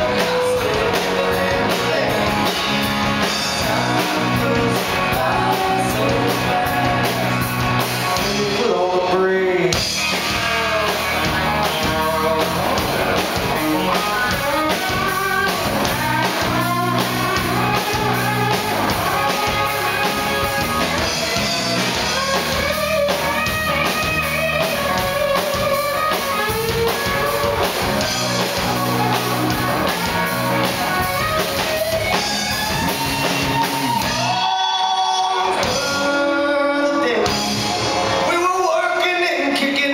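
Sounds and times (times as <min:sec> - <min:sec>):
lead vocal singing: 0:00.0 - 0:22.8, 0:32.9 - 0:37.6
live rock band playing: 0:00.0 - 0:39.9.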